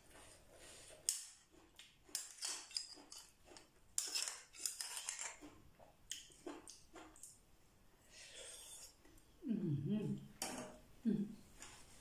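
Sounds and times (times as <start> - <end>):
metal spoon scraping shell: 4.0 - 5.4.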